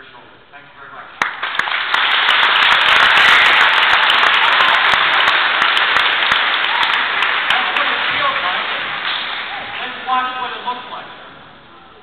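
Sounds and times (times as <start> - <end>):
audience applauding: 1.2 - 10.1.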